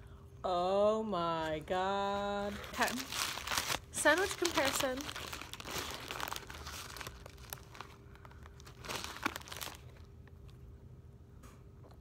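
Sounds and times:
paper bag crinkling and rustling: 2.0s - 10.6s.

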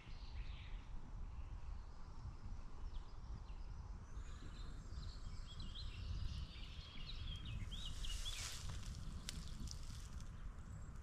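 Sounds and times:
wind rumbling on microphone: 1.0s - 11.0s
songbird chirping: 5.0s - 10.3s
brief rustle: 7.9s - 10.3s.

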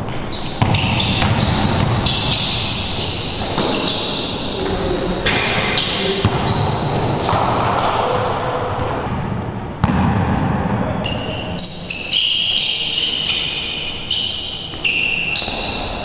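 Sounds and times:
sneakers squeaking on floor: 0.0s - 8.1s, 10.9s - 16.0s
basketball bouncing on court: 0.0s - 11.2s.

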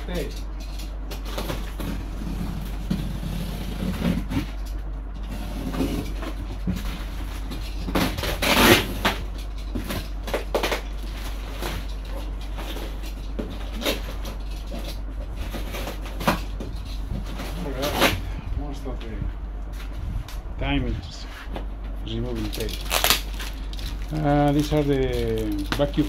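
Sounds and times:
low steady hum: 0.0s - 26.0s
cardboard scrapes and knocks: 5.3s - 9.2s
plastic wrap rustling: 22.1s - 26.0s.

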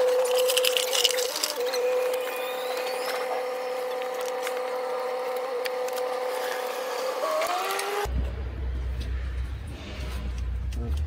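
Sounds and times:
motor whining: 0.0s - 8.1s.

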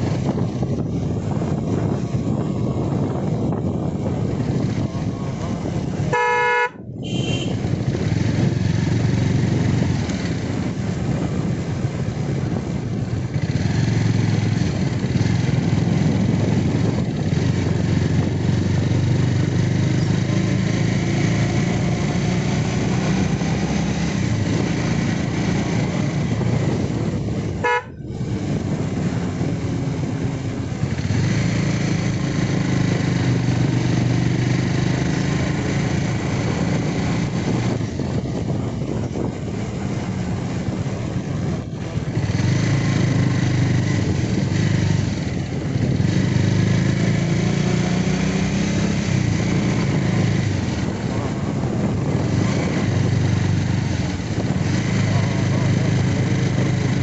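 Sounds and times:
motorcycle engine running: 0.0s - 57.0s
wind and road noise: 0.0s - 57.0s
horn beep: 6.1s - 7.7s, 27.6s - 28.1s.

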